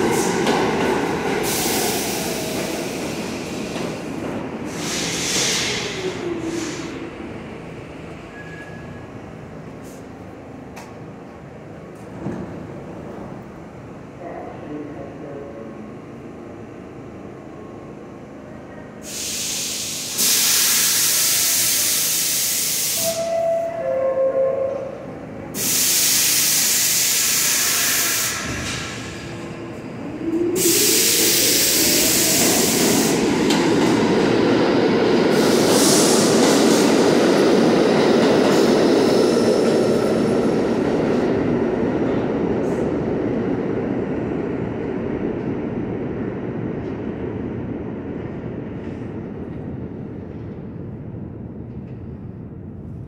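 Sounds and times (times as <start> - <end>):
train rumbling on rails: 0.0 - 53.0
air hiss bursts: 1.4 - 3.8, 4.7 - 7.0, 19.0 - 23.3, 25.6 - 29.1, 30.6 - 33.3.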